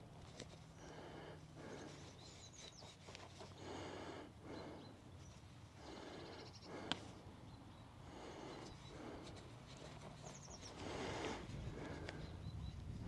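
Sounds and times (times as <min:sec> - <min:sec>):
fingers rubbing soil: 0:00.0 - 0:04.0, 0:08.5 - 0:12.4.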